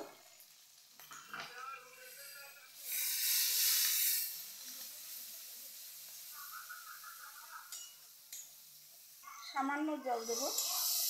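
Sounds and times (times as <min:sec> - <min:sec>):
faint sizzle of frying sauce: 0:00.0 - 0:11.0.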